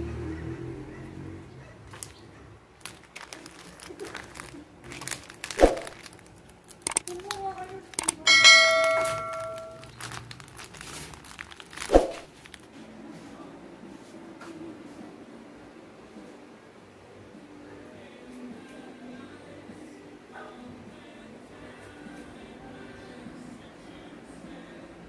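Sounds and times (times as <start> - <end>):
crinkling and handling noise: 1.8 - 14.6
sharp click: 6.8 - 7.1, 8.0 - 8.2
bell ding: 8.3 - 9.8.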